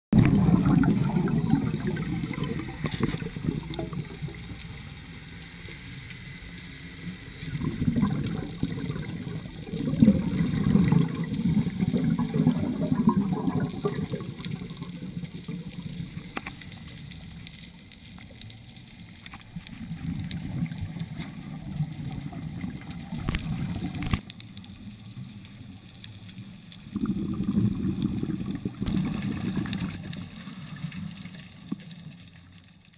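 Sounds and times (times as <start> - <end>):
diver's breath bubbling underwater: 0.2 - 4.4, 7.5 - 15.9, 26.9 - 30.1.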